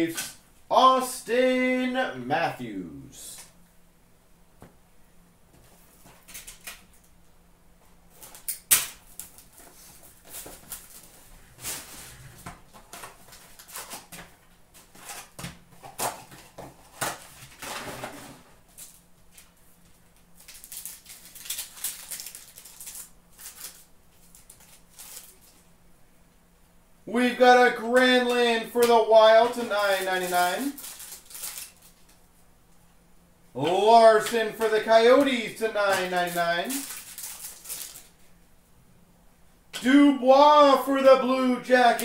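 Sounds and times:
wrappers rustling and crinkling: 8.1s - 14.2s, 14.8s - 25.7s, 29.4s - 32.2s, 35.1s - 38.4s.

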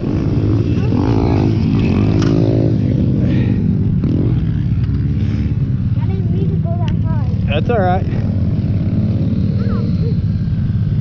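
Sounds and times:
pit bike engine revving: 0.0s - 11.0s.

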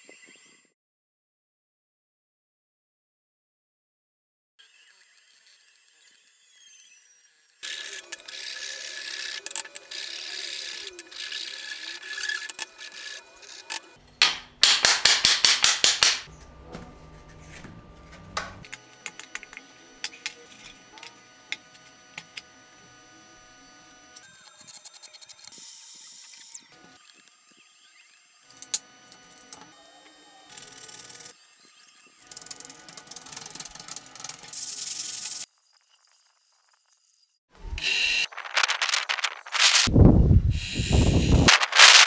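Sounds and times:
rapid loud sanding strokes: 38.3s - 39.9s.

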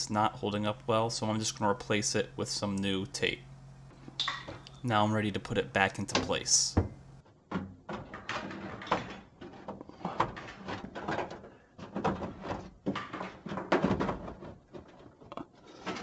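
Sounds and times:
sheet metal scraping and rattling: 7.5s - 16.0s.

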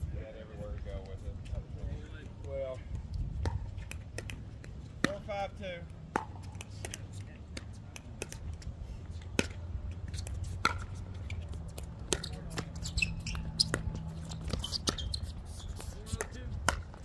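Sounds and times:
wind rumbling on microphone: 0.0s - 3.8s
ball bouncing on court: 3.4s - 5.4s, 6.1s - 8.6s, 9.3s - 17.0s.

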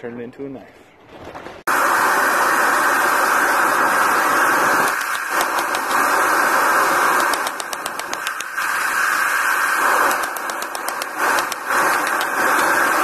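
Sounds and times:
hammer tapping metal on anvil: 7.2s - 8.6s, 10.1s - 12.8s.

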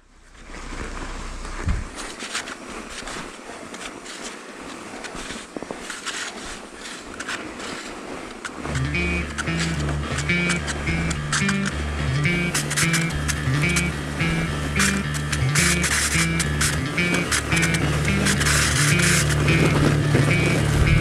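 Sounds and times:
wind and tyre noise: 0.0s - 21.0s
bike clicking and rattling: 5.0s - 21.0s
background music: 8.8s - 21.0s.

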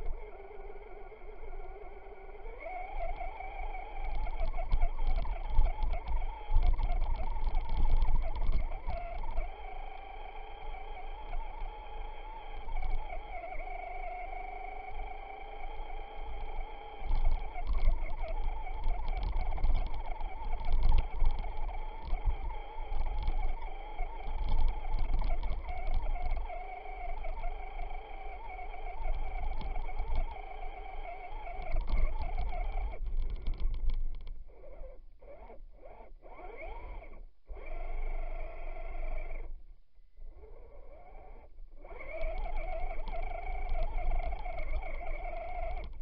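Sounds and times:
toy truck electric motor whining: 0.0s - 39.5s, 40.3s - 46.0s.

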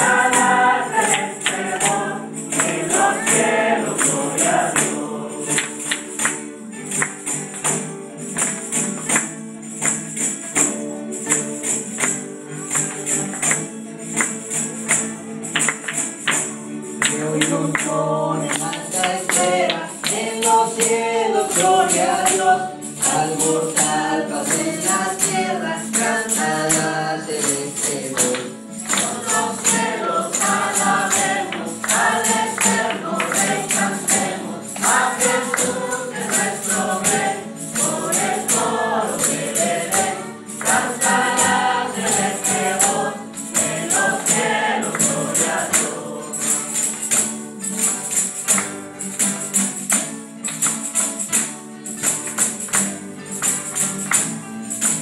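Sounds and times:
choir singing a hymn: 0.0s - 6.3s, 17.3s - 46.9s
instrumental accompaniment: 0.0s - 55.0s
tambourine jingling: 0.0s - 55.0s.

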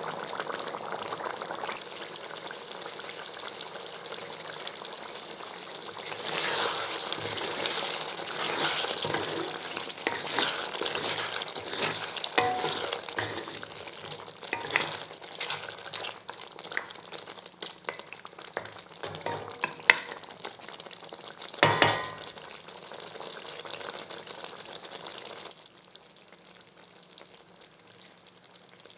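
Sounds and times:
gravy sizzling: 0.0s - 28.9s
spatula scraping a metal pot: 6.0s - 17.0s
knock on pot: 21.6s - 22.3s.

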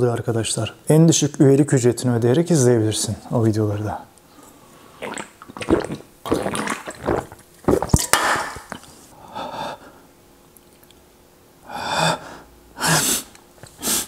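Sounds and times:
gulping swallows: 4.9s - 8.8s
liquid moving in can: 5.0s - 8.8s.

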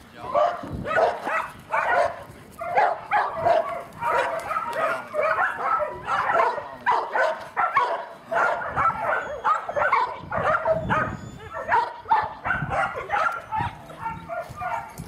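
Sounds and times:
dog barking and yipping: 0.2s - 15.0s.

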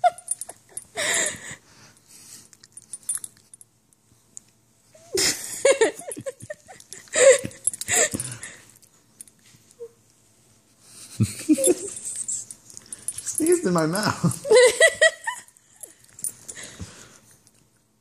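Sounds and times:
breathy wheezing laughter: 5.0s - 8.7s.

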